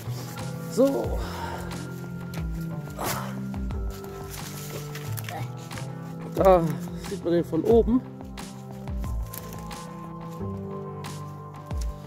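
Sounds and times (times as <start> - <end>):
sustained background music: 0.0 - 12.0.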